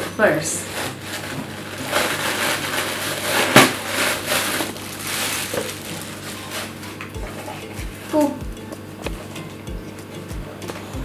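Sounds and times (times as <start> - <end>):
sharp plastic crackle: 0.0 - 7.1
plastic wrap crinkling: 0.0 - 8.3.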